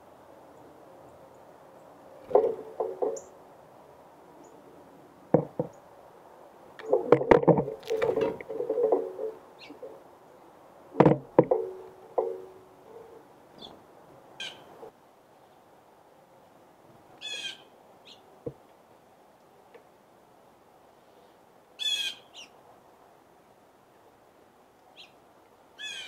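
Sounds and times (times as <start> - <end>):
birds knocking on feeder tray: 2.2 - 3.3, 5.3 - 5.8, 6.8 - 10.0, 10.9 - 13.1.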